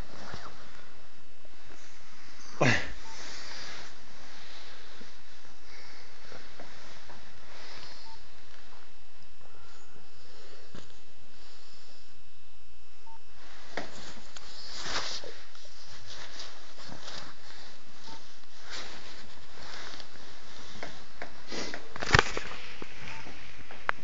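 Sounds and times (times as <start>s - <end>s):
steady hiss: 0.0s - 24.0s
cloth rustling: 1.5s - 9.0s, 13.4s - 23.8s.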